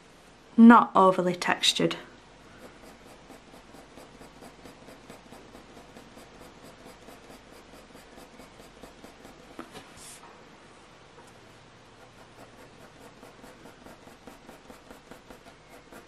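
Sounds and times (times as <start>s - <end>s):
pencil scratching on paper: 2.5s - 10.2s, 12.0s - 16.0s.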